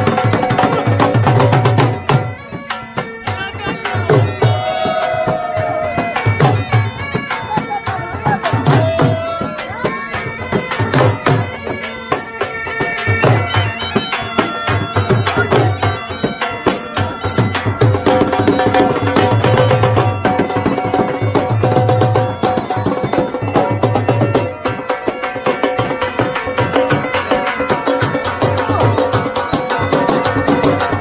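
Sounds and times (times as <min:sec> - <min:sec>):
heavy drum beats: 0:00.0 - 0:31.0
reedy wind instrument melody: 0:00.0 - 0:31.0.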